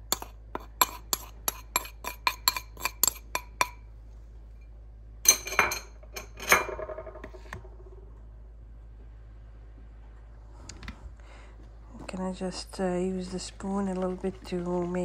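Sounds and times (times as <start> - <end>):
metal spoon tapping glass bowl: 0.1 - 3.8.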